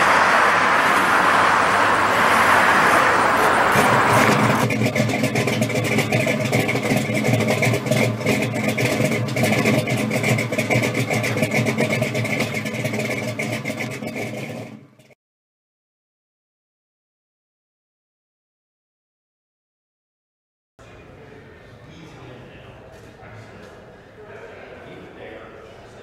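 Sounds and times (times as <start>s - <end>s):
car engine running: 0.0s - 15.1s.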